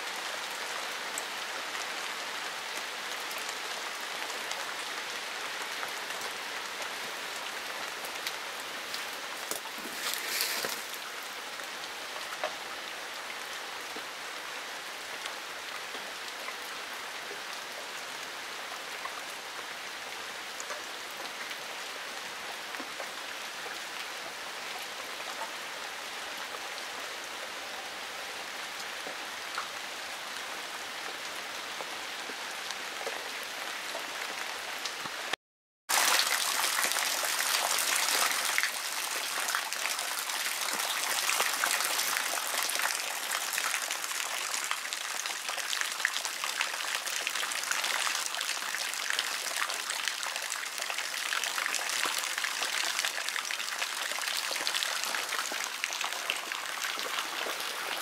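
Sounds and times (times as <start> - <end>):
rain pattering on paving stones: 0.0 - 12.6, 35.9 - 58.0
water pouring from downspout: 35.9 - 58.0.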